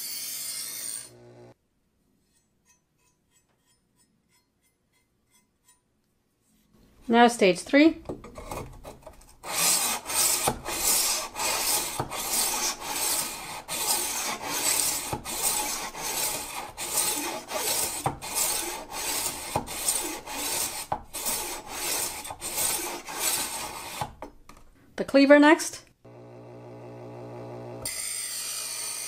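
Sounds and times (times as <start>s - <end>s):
knife rasping through sharpener: 2.2s - 5.9s, 8.4s - 24.2s.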